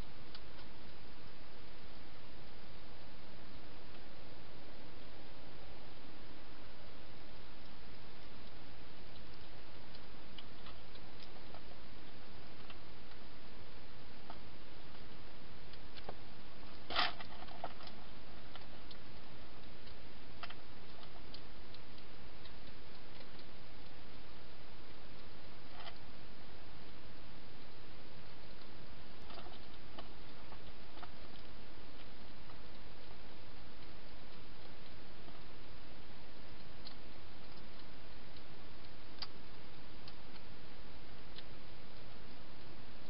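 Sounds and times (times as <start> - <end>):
steady hiss: 0.0 - 43.0.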